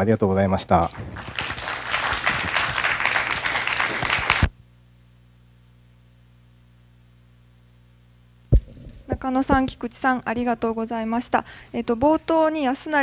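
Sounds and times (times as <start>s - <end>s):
faint steady hum: 0.0s - 13.0s
audience applauding: 0.8s - 4.5s.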